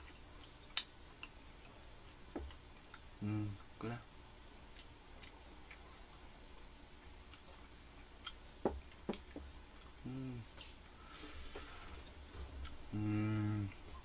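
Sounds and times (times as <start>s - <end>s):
person humming: 3.2s - 4.0s, 10.0s - 11.5s, 12.9s - 13.9s.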